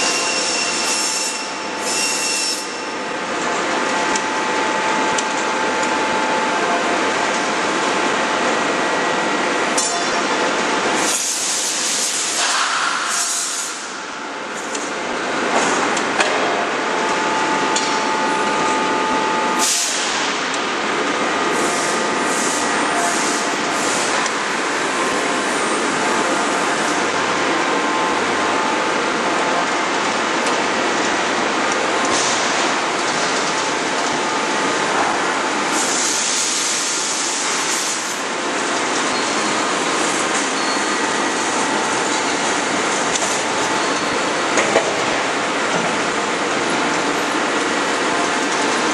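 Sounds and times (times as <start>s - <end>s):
machinery noise: 14.8s - 48.9s.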